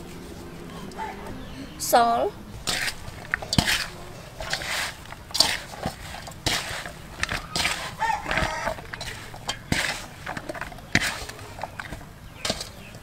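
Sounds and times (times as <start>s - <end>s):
rustle of hands in flour: 0.0s - 1.5s, 2.6s - 13.0s
rooster crowing: 0.7s - 1.8s, 7.4s - 9.4s
sharp knocks in a metal basin: 2.6s - 13.0s.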